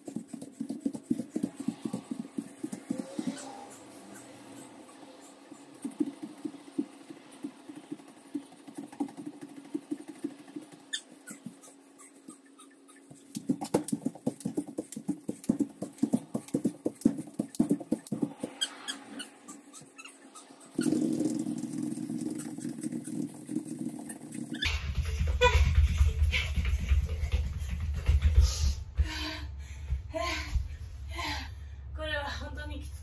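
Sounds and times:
shoes tapping on foam mats: 0.0 - 3.5, 5.8 - 11.7, 13.0 - 18.7, 24.6 - 30.7
steady low hum: 0.0 - 33.0.

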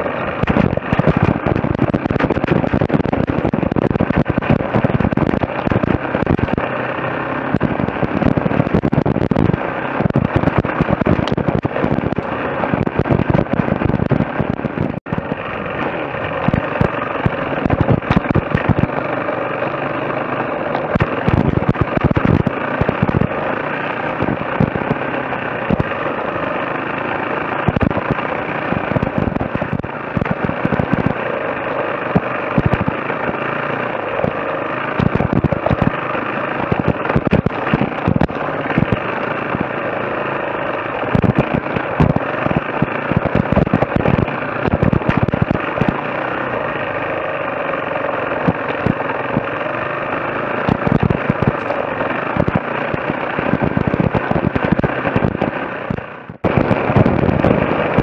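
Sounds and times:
motorcycle engine revving: 0.0 - 58.0
sharp pops and knocks: 0.4 - 6.6, 7.5 - 15.3, 16.5 - 18.9, 20.7 - 23.3, 24.2 - 25.0, 27.6 - 31.2, 32.1 - 33.4, 35.0 - 36.0, 36.6 - 39.7, 41.0 - 46.0, 50.6 - 58.0.

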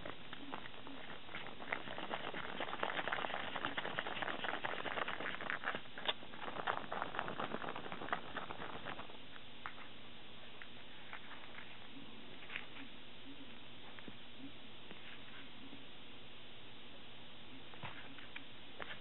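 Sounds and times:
chopsticks whipping sticky beans: 0.0 - 9.1.

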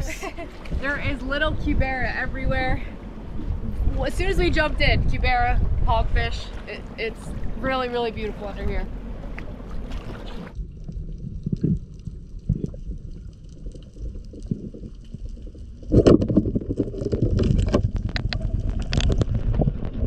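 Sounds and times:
muffled underwater rumble: 0.0 - 20.0
water gurgling: 0.0 - 20.0
dense crackle: 10.1 - 20.0.

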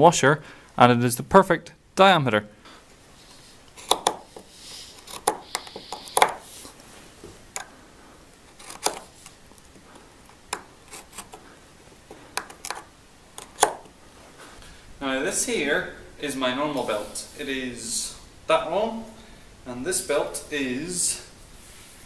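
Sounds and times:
knife cutting and scraping leather: 3.3 - 6.8, 8.5 - 9.3, 10.8 - 11.4.

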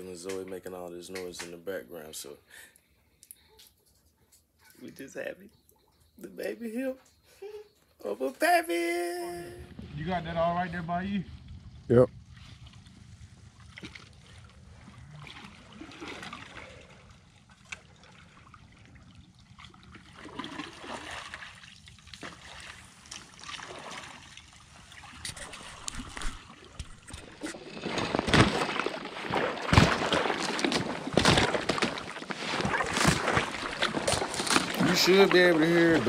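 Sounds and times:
footsteps sloshing through water: 12.3 - 36.0
thin ice cracking: 25.5 - 36.0.

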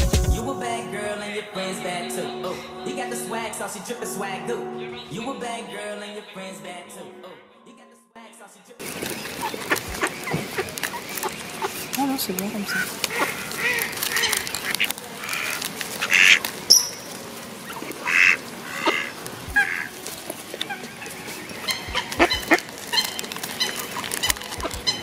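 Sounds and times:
ducks quacking: 8.8 - 25.0.

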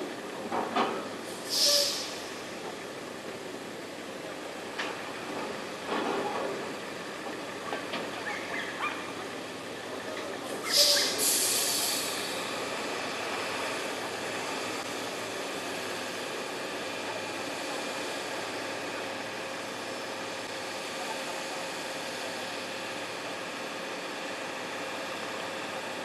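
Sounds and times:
loud air hiss: 1.3 - 2.5, 10.6 - 12.6.

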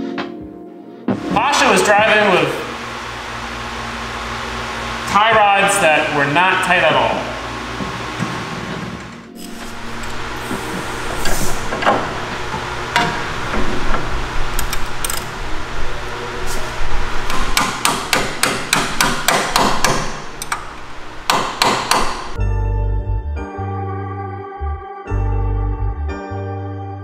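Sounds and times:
hammer blows: 21.3 - 22.4.

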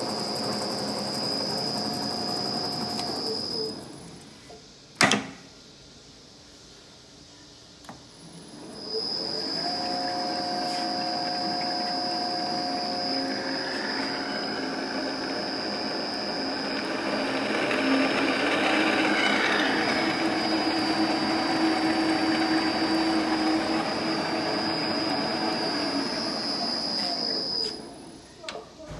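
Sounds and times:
lathe spindle whir and whine: 0.0 - 4.6, 7.9 - 28.3.

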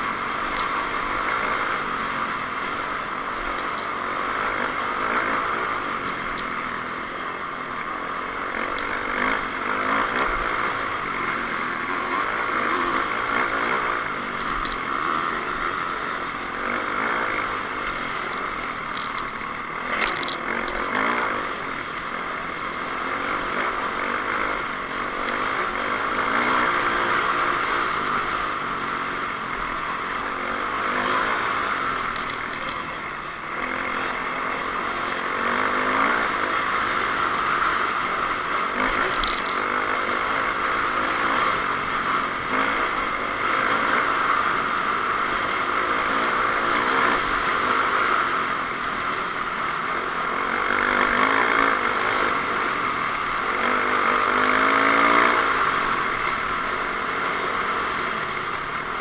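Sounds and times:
dirt bike engine revving: 0.0 - 59.0
sharp clicks: 3.5 - 6.8, 7.6 - 11.2, 12.2 - 28.4, 30.9 - 49.3.

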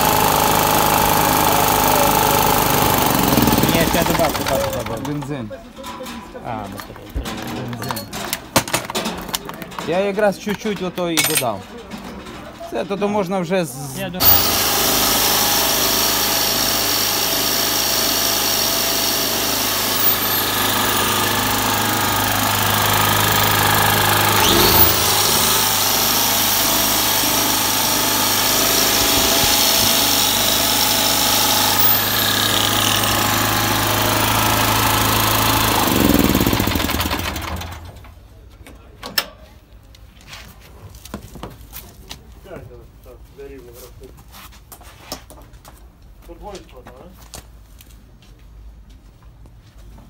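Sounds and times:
angle grinder spinning: 0.0 - 5.2, 14.2 - 37.7
generator engine running: 0.0 - 5.3, 14.2 - 38.0.

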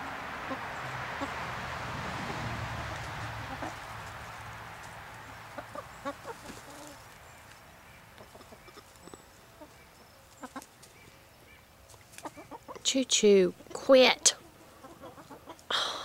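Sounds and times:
hens clucking softly: 3.0 - 4.4, 5.5 - 7.1, 8.1 - 10.8, 12.1 - 12.8, 13.6 - 15.7.

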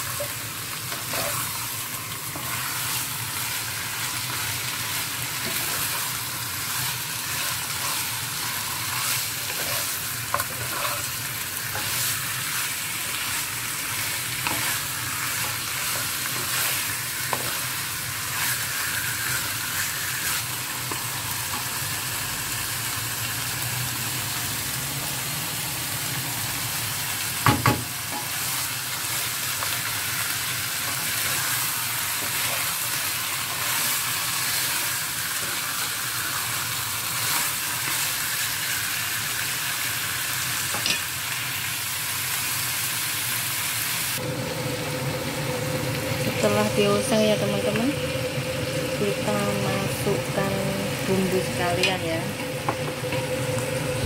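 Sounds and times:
wooden spatula scraping pan: 0.0 - 1.6, 5.4 - 12.3
chicken sizzling in oil: 0.0 - 54.0.

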